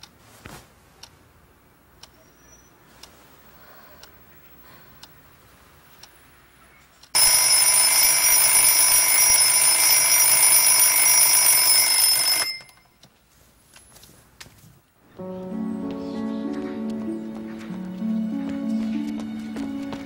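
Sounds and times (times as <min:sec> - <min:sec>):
alarm clock ticking: 0:07.0 - 0:13.0
alarm clock bell ringing: 0:07.2 - 0:12.8.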